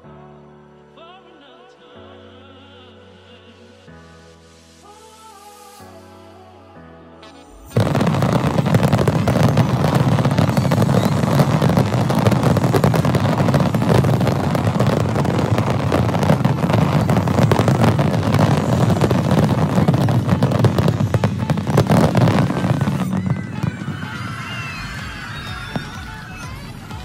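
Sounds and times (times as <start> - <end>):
fireworks bangs and crackles: 7.5 - 27.0.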